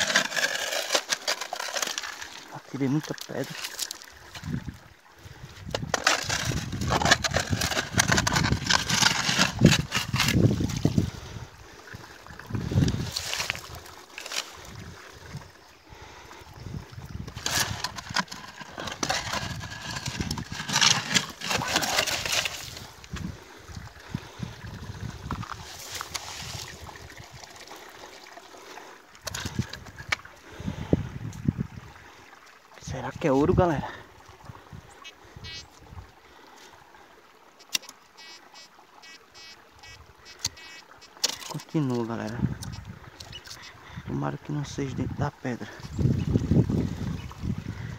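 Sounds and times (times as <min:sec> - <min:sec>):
pebbles scraping and rattling: 0:00.0 - 0:04.6, 0:05.6 - 0:11.2, 0:12.4 - 0:15.4, 0:17.2 - 0:23.4, 0:25.0 - 0:28.2, 0:28.8 - 0:30.8, 0:40.6 - 0:42.7
scoop digging wet gravel: 0:00.0 - 0:04.6, 0:05.6 - 0:11.3, 0:12.5 - 0:15.3, 0:17.2 - 0:23.3, 0:25.2 - 0:27.1
faint running water: 0:00.0 - 0:47.9
metal detector buzzing beeps: 0:38.2 - 0:40.8.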